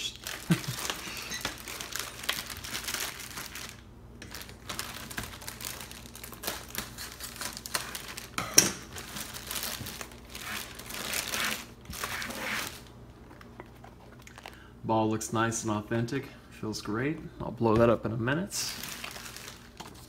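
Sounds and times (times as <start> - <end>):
packaging crinkling: 0.0 - 14.6, 18.6 - 20.0.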